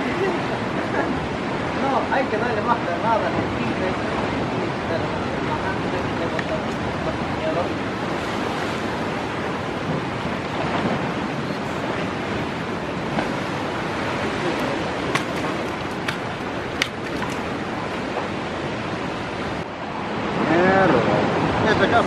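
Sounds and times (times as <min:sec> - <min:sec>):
surf breaking against rocks: 0:05.3 - 0:18.6.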